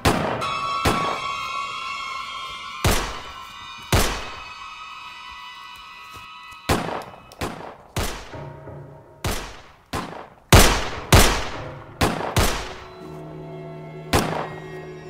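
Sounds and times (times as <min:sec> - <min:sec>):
pistol gunshots: 0:00.0 - 0:01.1, 0:06.7 - 0:08.5, 0:09.2 - 0:12.9
faint background music: 0:11.2 - 0:15.0.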